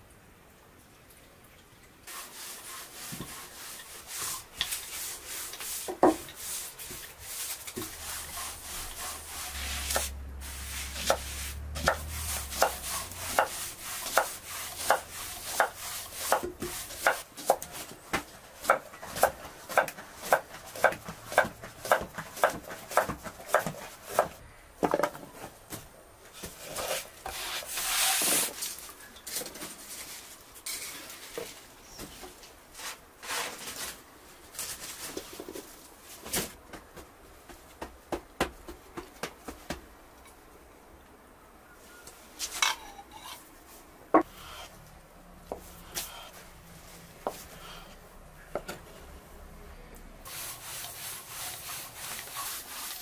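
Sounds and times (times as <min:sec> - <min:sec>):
knife chopping on wooden board: 0:11.0 - 0:17.7
leafy greens rustling: 0:26.3 - 0:36.6.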